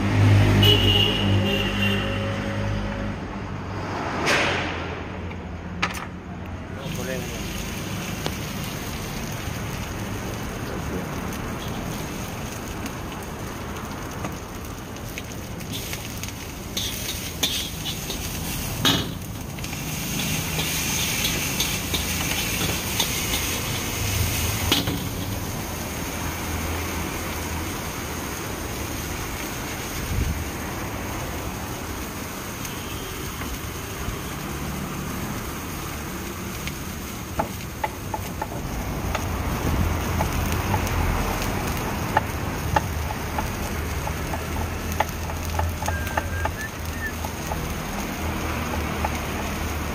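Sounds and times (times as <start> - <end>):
gas burner noise: 5.8 - 49.9
food sizzling in a wok: 6.7 - 49.9
metal spatula scraping a wok: 16.7 - 25.4.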